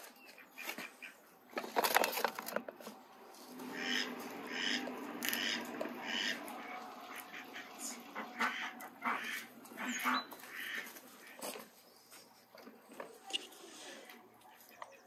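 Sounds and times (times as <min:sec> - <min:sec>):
ducks quacking: 0:00.3 - 0:01.2, 0:03.5 - 0:11.8, 0:14.4 - 0:15.0.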